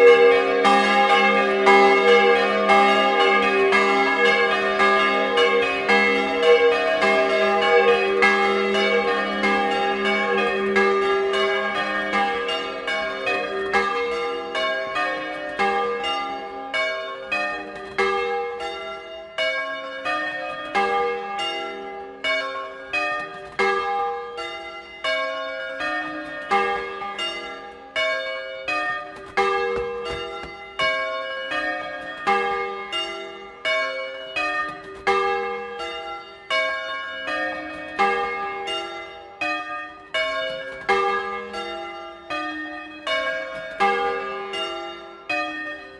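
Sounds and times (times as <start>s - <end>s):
bronze bells ringing: 0.0s - 45.9s.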